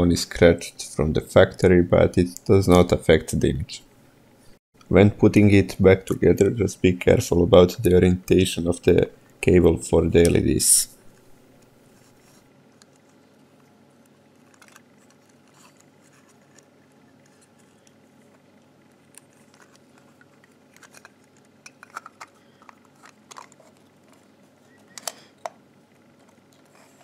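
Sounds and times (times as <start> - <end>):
light plastic clicks and rubs: 12.0 - 24.3.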